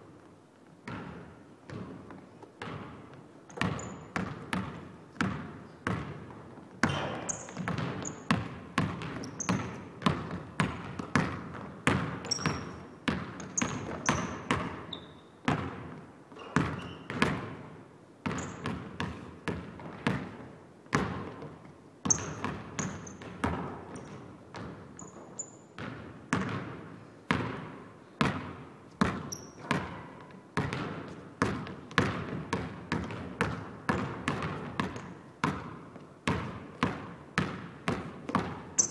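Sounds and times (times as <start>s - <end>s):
basketball bouncing on wooden floor: 0.8s - 38.9s
shoes squeaking on floor: 3.5s - 4.2s, 6.8s - 8.3s, 9.0s - 9.9s, 12.2s - 15.4s, 16.3s - 17.2s, 18.3s - 18.7s, 22.1s - 23.3s, 24.9s - 25.8s, 29.1s - 30.1s.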